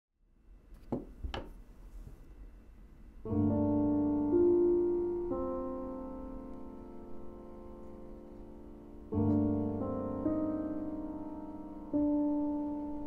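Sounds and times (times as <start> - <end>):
piano chords: 3.2 - 13.0.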